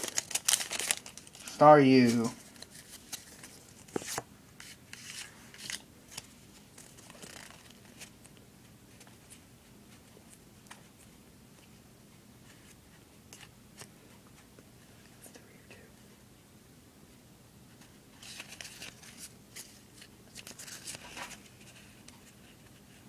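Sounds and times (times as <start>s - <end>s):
cards rustling and clicking: 0.0s - 8.2s, 18.2s - 22.8s.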